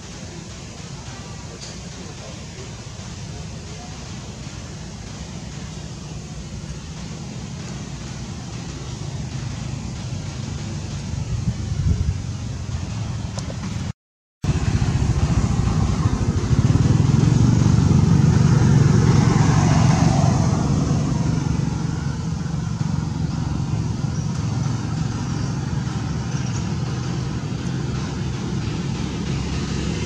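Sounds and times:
passing vehicle engine hum: 14.5 - 30.0.

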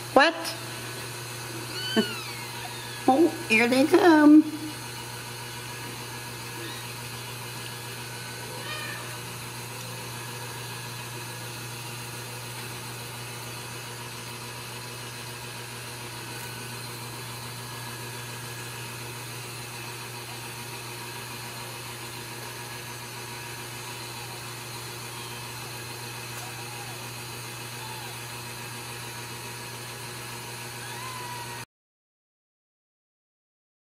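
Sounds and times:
steady hum and hiss: 0.0 - 28.7
kitten mewing: 1.7 - 3.4, 6.6 - 6.9, 8.2 - 9.3, 26.3 - 28.3, 30.8 - 31.6.

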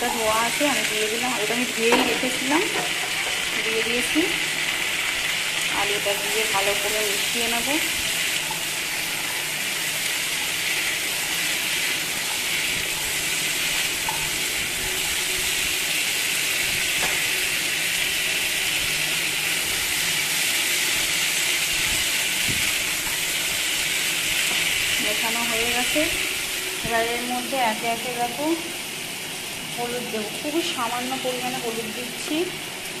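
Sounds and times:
food sizzling in hot oil: 0.0 - 33.0.

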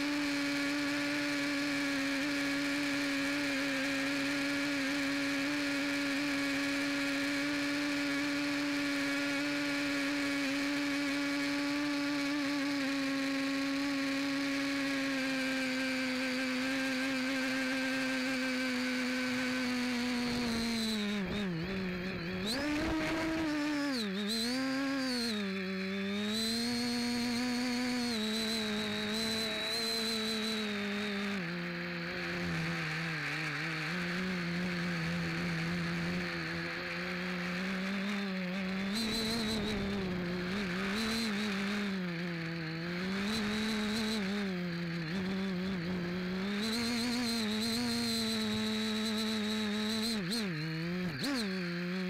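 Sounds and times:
drone motors whining: 0.0 - 52.0.

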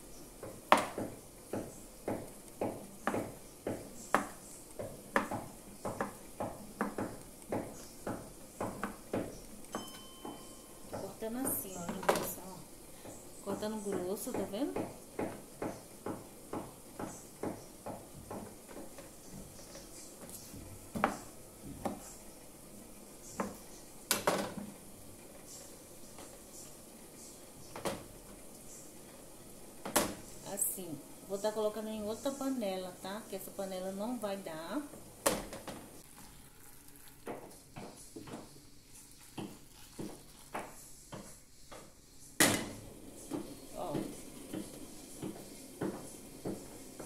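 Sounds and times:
water trickling into a pot: 36.0 - 37.8, 38.8 - 40.8.

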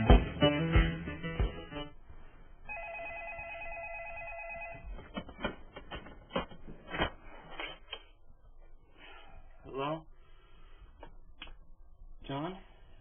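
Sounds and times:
telephone ringing with electronic trill: 2.7 - 4.9.

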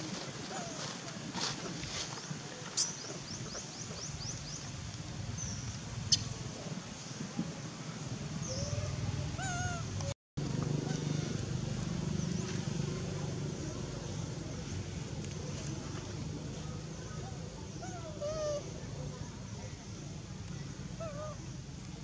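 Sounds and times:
low background murmur: 10.8 - 22.0.

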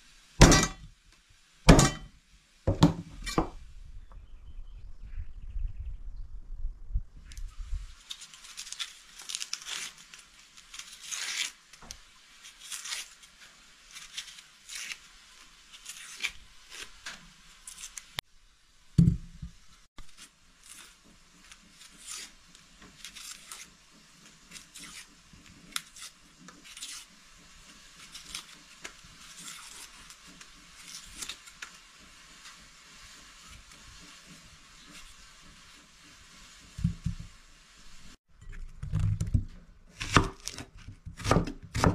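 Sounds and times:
onion skins crackling and tearing: 7.3 - 18.2, 20.0 - 37.2, 38.5 - 41.9.

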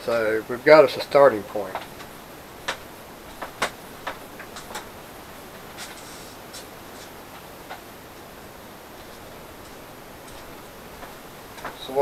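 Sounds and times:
faint steady hiss: 0.0 - 12.0
light footsteps: 1.4 - 12.0
small items clicking and tapping: 1.7 - 4.9.

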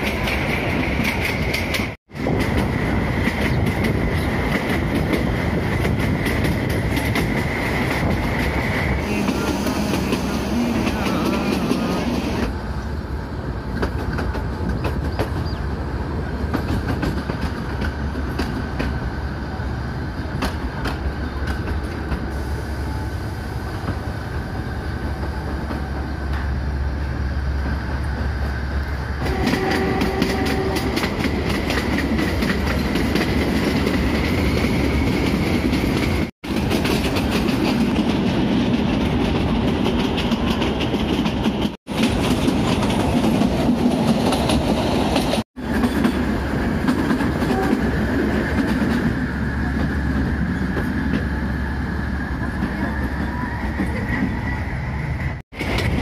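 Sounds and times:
train wheels clattering: 0.0 - 12.5, 16.4 - 19.0, 29.2 - 51.3
train low rumble: 0.0 - 56.0.

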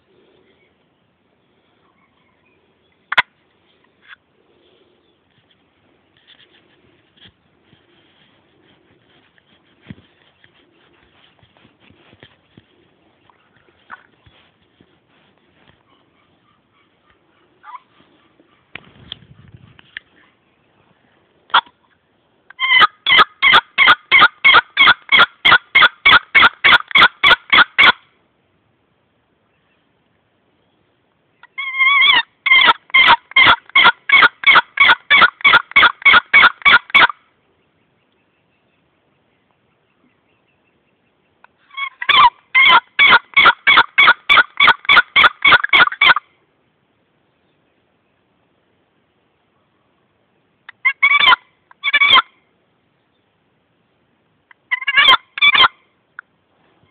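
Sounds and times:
turkey box call squealing: 22.6 - 25.2, 31.5 - 37.1, 41.7 - 46.2, 50.8 - 52.3, 54.7 - 55.8.

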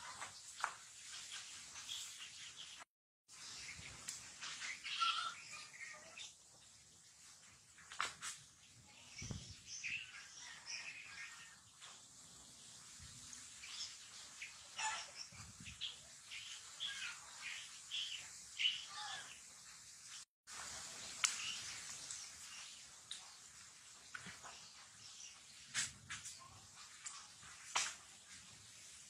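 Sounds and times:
high-pitched chirping calls: 3.4 - 6.4.

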